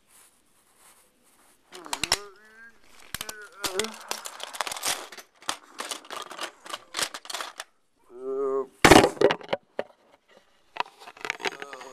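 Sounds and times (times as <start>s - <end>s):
person humming: 1.7s - 4.3s, 8.0s - 8.8s
plastic bricks clicking and clattering: 1.8s - 7.7s, 8.8s - 11.9s
plastic bricks crashing: 2.9s - 7.7s, 8.8s - 11.9s.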